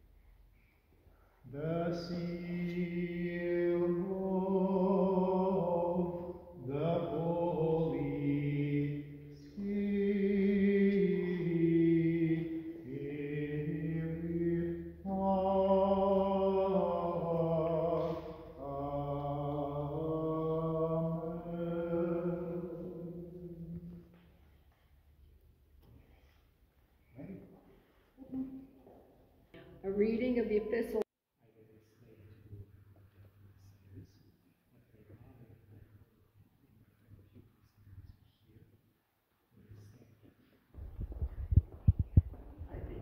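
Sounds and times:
man chanting unaccompanied: 1.5s - 23.9s.

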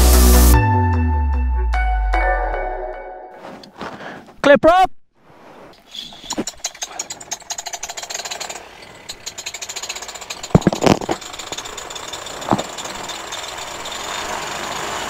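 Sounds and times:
engine firing unevenly: 6.6s - 15.0s.

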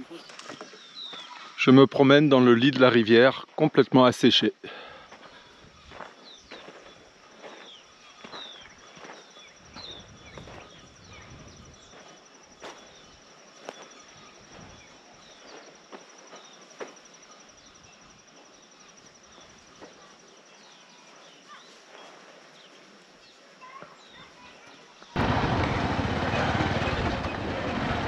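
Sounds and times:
footsteps on stony ground: 0.1s - 1.6s, 5.1s - 17.1s.

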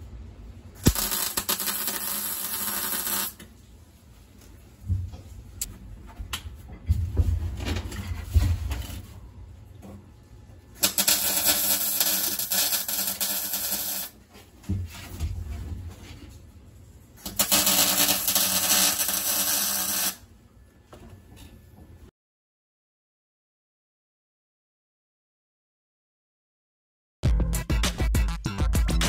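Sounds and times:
welder crackling sizzle: 0.8s - 3.5s, 10.8s - 14.2s, 17.2s - 20.3s.

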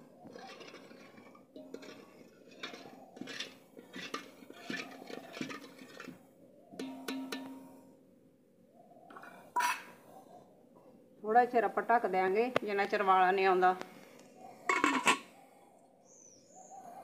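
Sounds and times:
ladle clinking and scraping pot: 0.0s - 7.9s, 9.1s - 10.0s, 14.7s - 15.3s.

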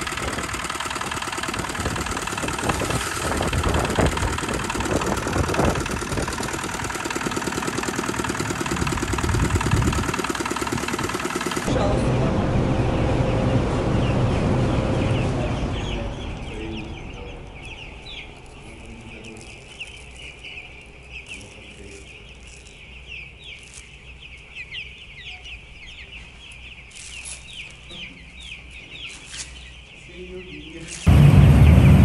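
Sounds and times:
chicks peeping: 0.0s - 12.0s, 12.9s - 31.9s
loud low rumble: 11.7s - 17.5s, 31.1s - 32.0s.

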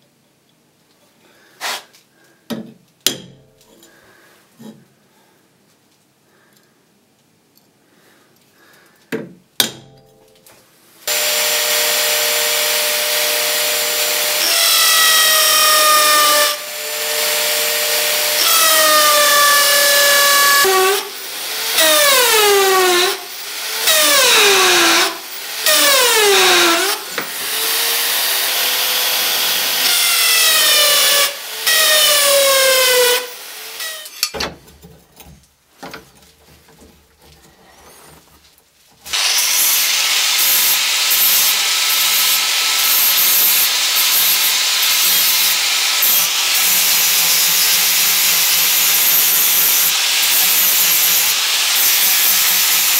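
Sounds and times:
screeching drill bit: 11.1s - 34.2s, 39.1s - 52.9s
drill press cutting steel: 11.1s - 34.3s, 39.1s - 52.9s.

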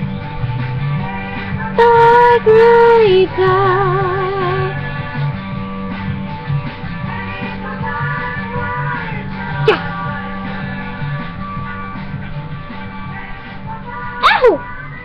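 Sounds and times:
musical accompaniment: 0.0s - 15.0s
person singing with vibrato: 1.1s - 4.9s, 7.2s - 11.0s, 13.1s - 15.0s.

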